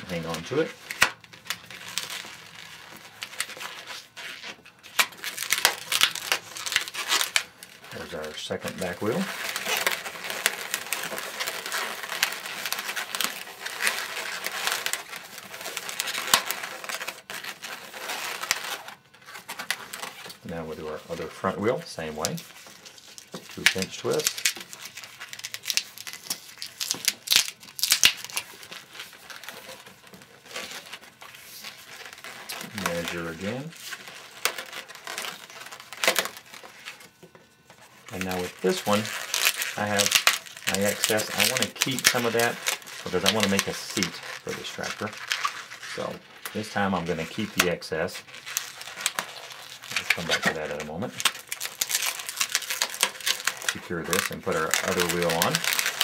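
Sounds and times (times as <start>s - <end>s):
balloon rubbing scratchily: 5.3s - 20.4s.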